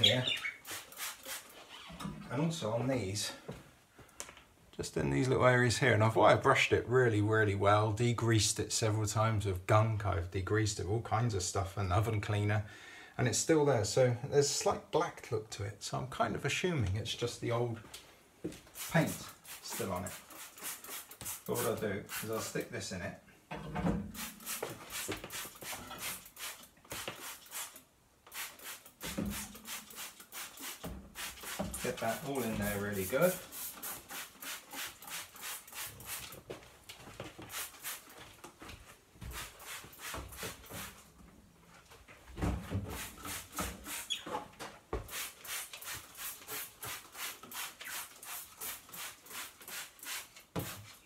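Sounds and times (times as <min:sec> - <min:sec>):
spray bottle hissing: 0:00.4 - 0:01.6, 0:18.7 - 0:22.5, 0:24.2 - 0:36.4, 0:37.5 - 0:38.1, 0:39.3 - 0:41.0, 0:42.9 - 0:44.2, 0:45.1 - 0:51.0.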